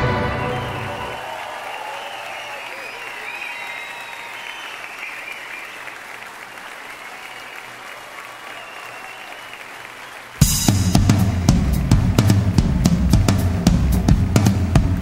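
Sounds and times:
audience applauding: 0.0s - 15.0s
whoops: 0.1s - 10.2s
loud drum-kit music: 10.4s - 15.0s.

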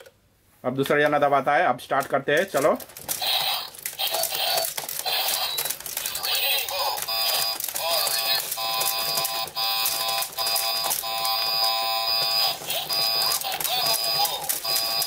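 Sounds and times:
plastic robots clacking: 2.0s - 15.0s
steady beeping tone: 7.0s - 15.0s.

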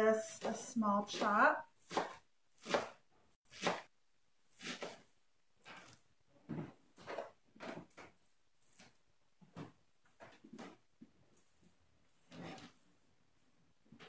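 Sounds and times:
knife chopping on plastic board: 0.4s - 3.9s, 4.5s - 5.1s.

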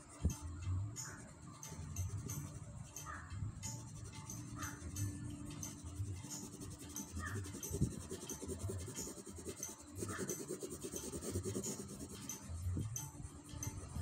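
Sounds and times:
colored pencil scratching paper: 5.7s - 12.5s.

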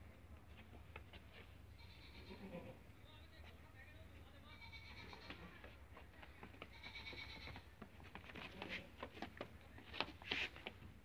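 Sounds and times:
goats bleating: 1.8s - 2.8s, 4.5s - 5.6s, 6.7s - 7.6s.

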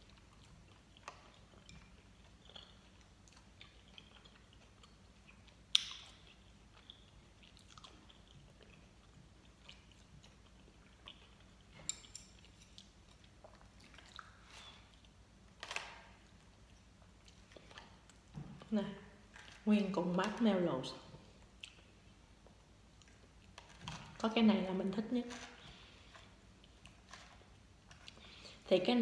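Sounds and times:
chewing gummy candy: 0.0s - 15.2s.

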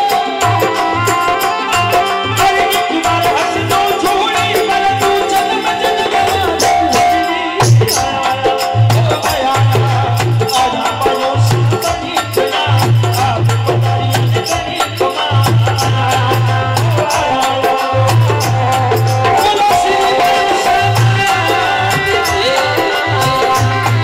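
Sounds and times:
harmonium chords: 0.0s - 24.0s
percussion beat: 0.0s - 24.0s.

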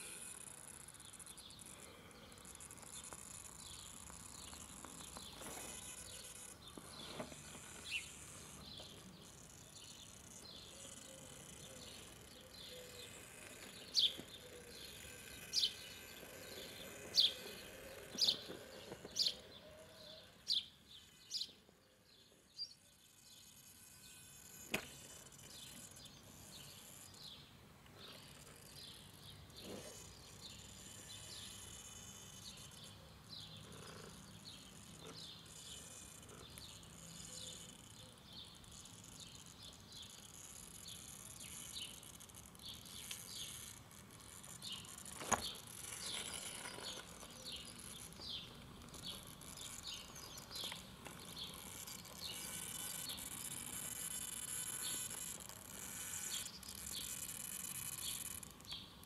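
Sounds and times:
small birds chirping: 0.0s - 59.0s
sharp click: 24.7s - 25.0s.

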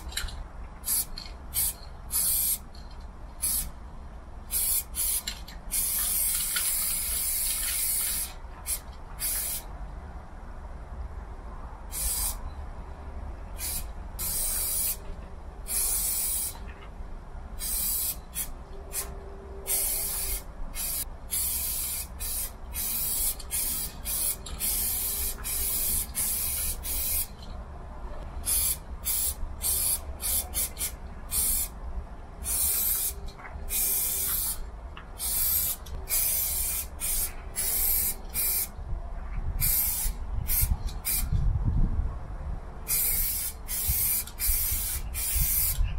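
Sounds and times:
low steady rumble: 0.0s - 45.9s
spray paint can hissing: 0.8s - 2.6s, 3.4s - 3.7s, 4.5s - 9.7s, 11.9s - 12.4s, 13.6s - 15.0s, 15.6s - 16.6s, 17.6s - 19.1s, 19.7s - 27.4s, 28.4s - 31.8s, 32.4s - 34.6s, 35.2s - 38.7s, 39.6s - 41.3s, 42.9s - 45.8s.

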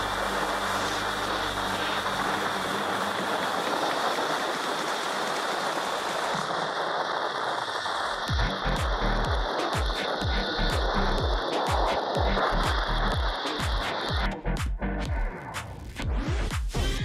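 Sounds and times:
electronic music bass beats: 0.0s - 3.2s, 8.2s - 17.0s
steady rushing hiss: 0.0s - 14.2s.

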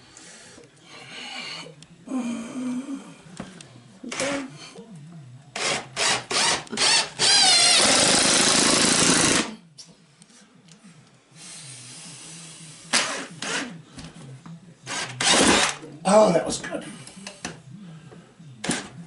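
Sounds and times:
cordless drill driving screws: 5.6s - 9.5s, 14.9s - 15.8s.

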